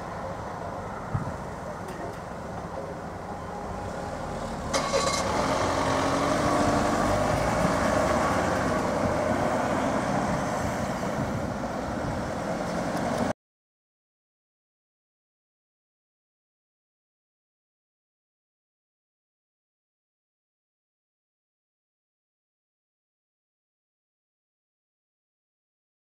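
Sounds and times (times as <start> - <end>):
car engines: 0.0 - 13.4.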